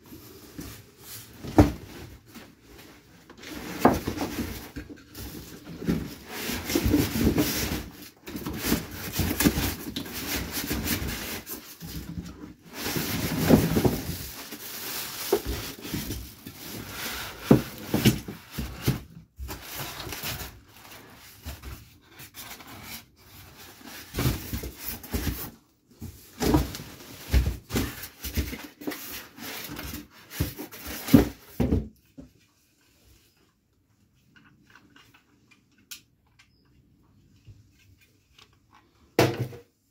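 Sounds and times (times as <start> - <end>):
packaging rustling and scraping: 0.1 - 31.8.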